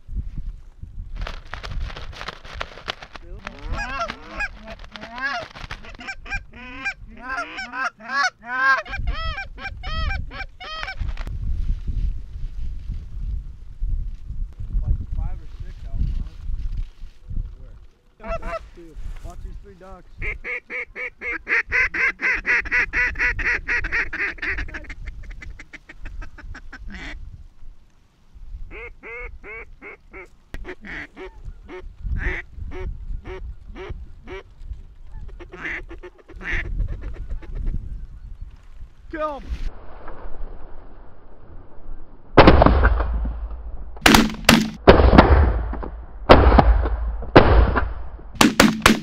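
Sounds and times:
duck call quacks: 3.6s - 11.0s, 20.2s - 27.2s, 28.7s - 32.4s, 35.3s - 37.6s
goose honks and clucks: 3.6s - 11.0s, 35.2s - 37.7s.

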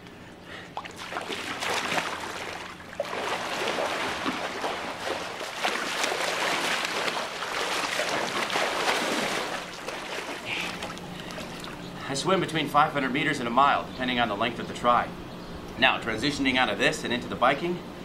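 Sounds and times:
swimmer splashing in pool: 0.8s - 11.8s.

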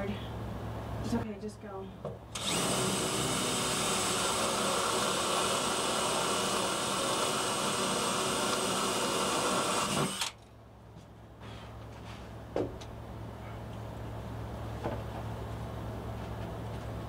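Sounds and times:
power drill running: 2.3s - 10.4s.

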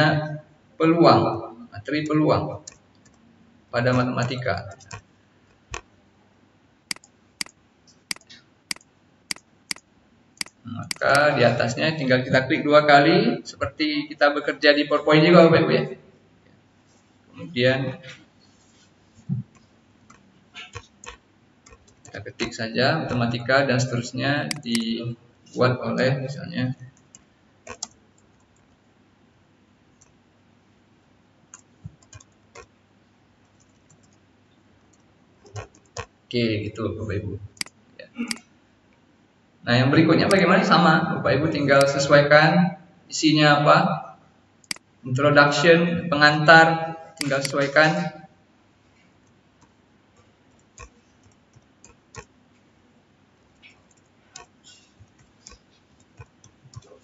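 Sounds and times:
computer keyboard keystrokes: 3.9s - 5.0s, 6.9s - 11.4s, 20.1s - 22.6s, 24.5s - 24.9s, 26.9s - 28.8s, 31.5s - 32.7s, 33.5s - 34.2s, 34.9s - 36.1s, 47.2s - 47.8s, 50.5s - 52.3s, 53.6s - 57.0s
keyboard key clicks: 6.9s - 9.8s, 10.4s - 11.3s, 24.5s - 24.9s.

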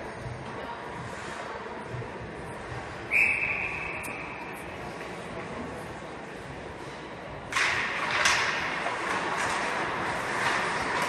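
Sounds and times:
skates scraping ice: 6.8s - 11.0s.

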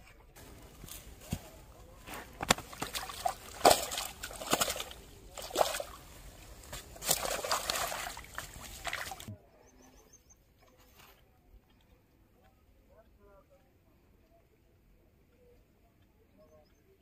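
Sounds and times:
fish thrashing and splashing: 0.4s - 9.3s.

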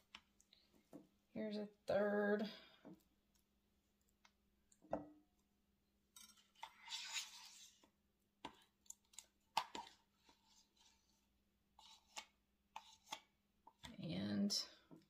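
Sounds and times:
metal spoon scraping: 6.2s - 7.9s, 9.2s - 13.3s.

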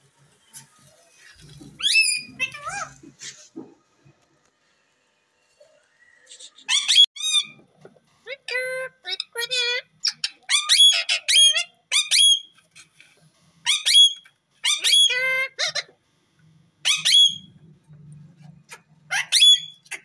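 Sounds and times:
parakeets squawking: 1.8s - 3.0s, 6.6s - 7.6s, 8.4s - 12.5s, 13.7s - 15.9s, 16.8s - 17.5s, 18.7s - 20.0s.

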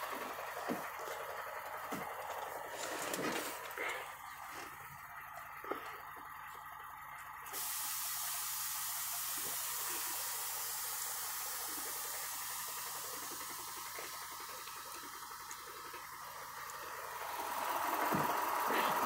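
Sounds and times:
compressed air hissing: 7.5s - 19.0s.

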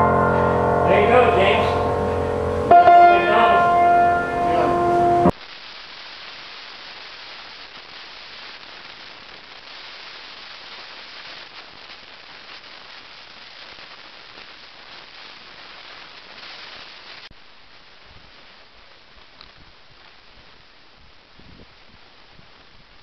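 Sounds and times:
sung guitar chord ringing: 0.0s - 5.3s
background hiss: 0.0s - 23.0s.

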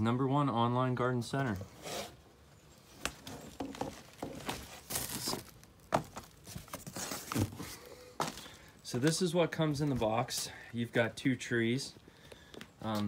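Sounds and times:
plastic wrapping rustling: 2.8s - 8.6s.

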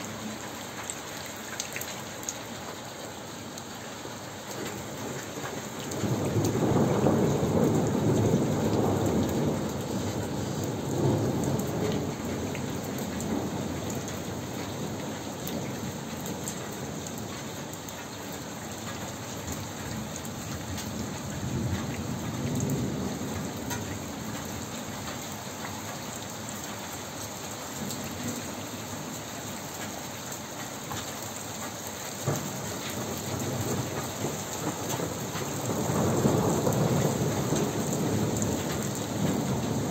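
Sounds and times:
steady rain: 0.0s - 39.9s
thunder rumble: 6.0s - 15.0s, 32.2s - 39.9s.

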